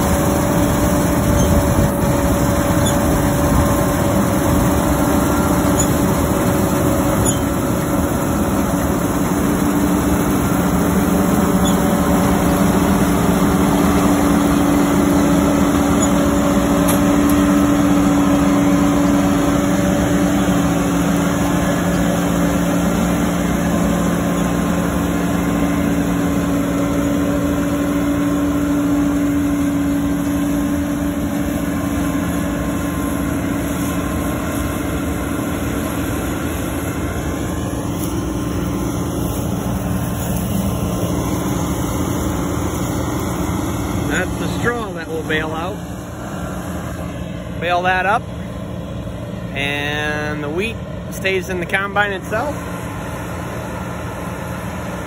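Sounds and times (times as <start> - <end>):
combine harvester hum: 0.0 - 55.0
lower machine tone: 0.0 - 55.0.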